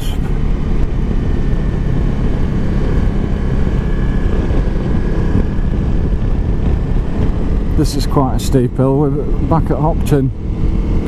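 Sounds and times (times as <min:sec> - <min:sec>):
motorcycle engine running: 0:00.0 - 0:11.0
wind rushing: 0:00.0 - 0:11.0.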